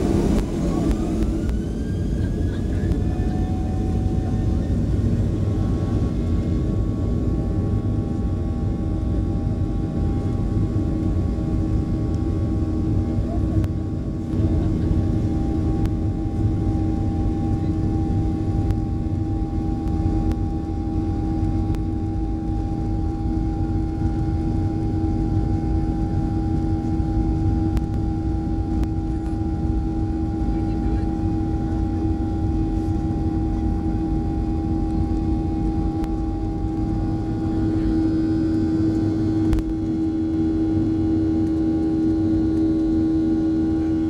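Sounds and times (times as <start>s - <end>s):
engine whining tones: 0.0s - 6.0s
jet engines rumbling: 0.0s - 44.0s.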